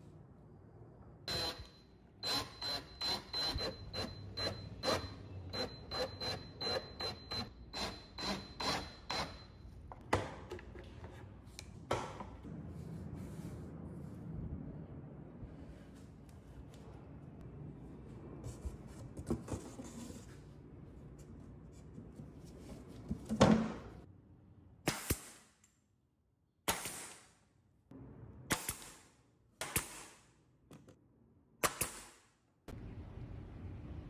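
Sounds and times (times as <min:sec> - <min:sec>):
pneumatic nail gun firing: 0:24.9 - 0:25.5, 0:26.7 - 0:27.4.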